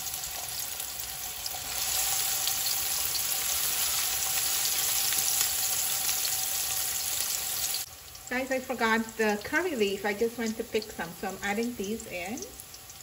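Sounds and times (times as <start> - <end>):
onion sizzling in hot oil: 0.0 - 13.0.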